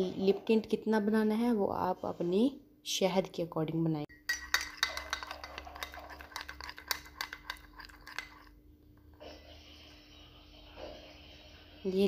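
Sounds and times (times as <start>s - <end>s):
spoon clinking and scraping cup: 4.1s - 8.6s.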